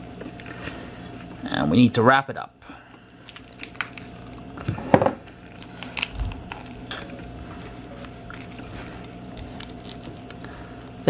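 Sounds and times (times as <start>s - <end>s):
soft rustling of wrap: 5.5s - 11.0s.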